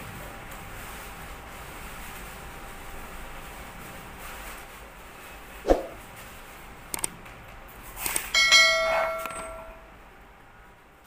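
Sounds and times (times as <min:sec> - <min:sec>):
clicks: 0:06.9 - 0:07.2
bright bell-like chime: 0:08.4 - 0:09.8.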